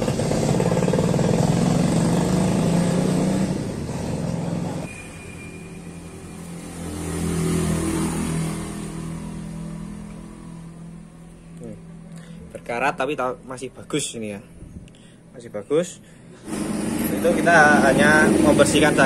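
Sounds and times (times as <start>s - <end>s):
motorcycle engine revving: 0.0s - 5.0s, 5.8s - 10.7s, 16.4s - 19.0s.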